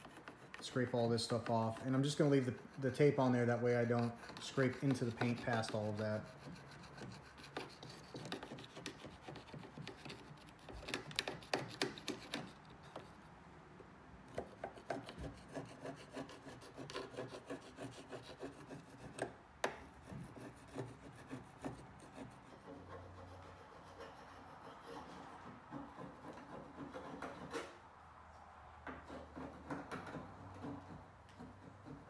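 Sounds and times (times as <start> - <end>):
metal scraper scraping sealant: 0.0 - 13.0.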